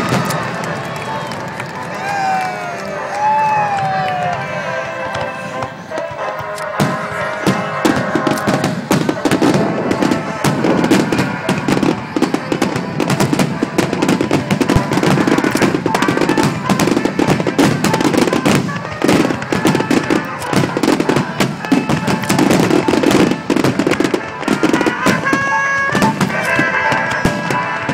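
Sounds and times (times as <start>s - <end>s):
music playing: 0.0s - 27.9s
firework shells bursting: 6.0s - 27.9s.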